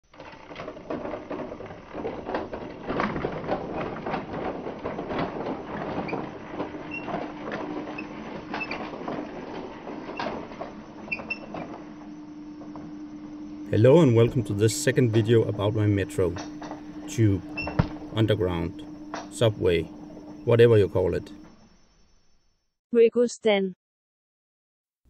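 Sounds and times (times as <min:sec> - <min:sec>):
steady hum: 0:03.0 - 0:21.6.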